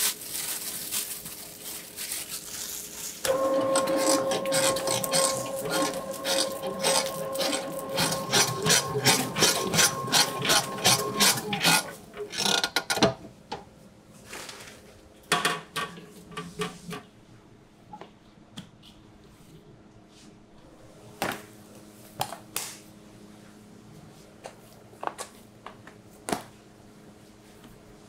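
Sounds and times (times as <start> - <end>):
dough rubbing in bowl: 2.8 - 12.0
mixer motor hum: 3.3 - 12.5.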